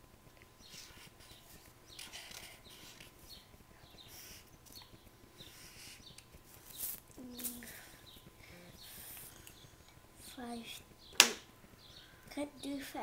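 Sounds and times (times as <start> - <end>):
marker squeaking on paper: 0.6 - 7.6.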